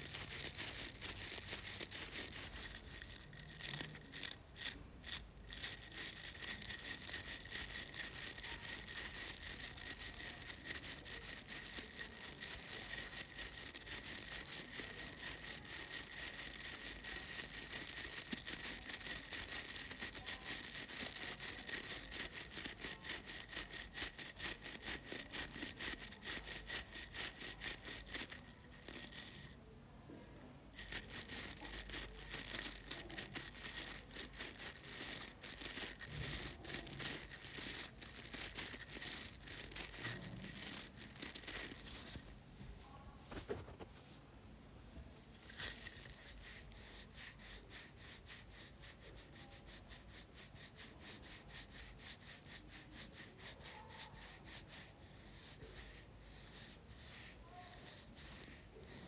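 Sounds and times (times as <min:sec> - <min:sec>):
scratching and rubbing through hair: 0:00.0 - 0:29.6, 0:30.8 - 0:44.2.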